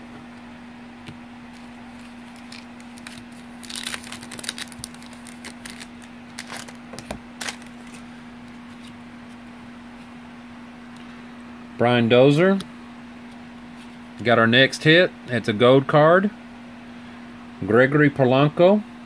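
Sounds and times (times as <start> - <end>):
steady low hum: 0.0 - 19.0
crinkling and crackling: 1.5 - 9.0
cards being shuffled: 1.5 - 9.4.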